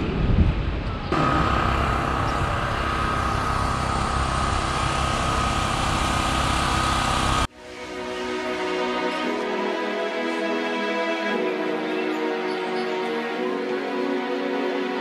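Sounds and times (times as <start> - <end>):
small motor whining: 1.1 - 7.5.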